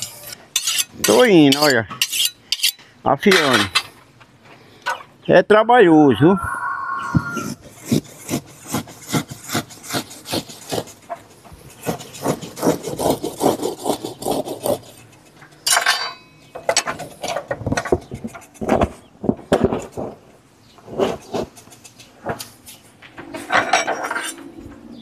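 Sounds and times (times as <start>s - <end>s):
steel blade scraping rubber: 0.0s - 2.8s, 7.3s - 15.4s.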